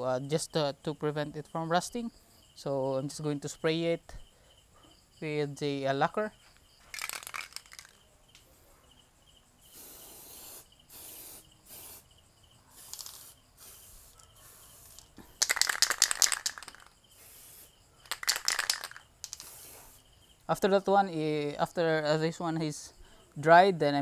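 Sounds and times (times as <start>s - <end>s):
spray can ball rattling: 6.8s - 8.0s, 9.7s - 12.0s, 12.7s - 20.0s
aerosol spray hissing: 9.6s - 12.1s, 12.7s - 20.1s.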